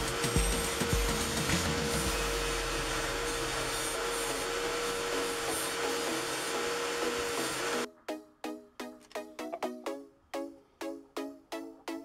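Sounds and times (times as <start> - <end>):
electric drill motor whine: 0.0 - 7.9.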